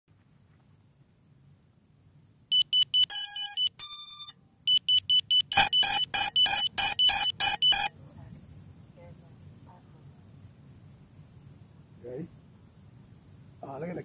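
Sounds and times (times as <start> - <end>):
electronic startup beeps: 2.5 - 7.9.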